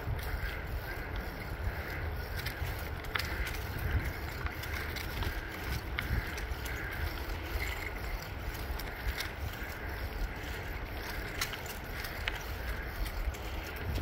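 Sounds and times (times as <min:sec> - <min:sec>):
tyres hissing on asphalt: 0:00.0 - 0:14.0
wind rumbling on microphone: 0:00.0 - 0:14.0.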